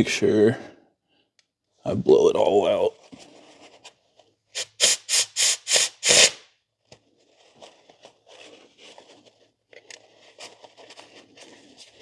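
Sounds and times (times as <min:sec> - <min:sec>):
air blow gun hissing blasts: 0:04.6 - 0:06.4
paper towels rubbing and rustling: 0:07.2 - 0:12.0.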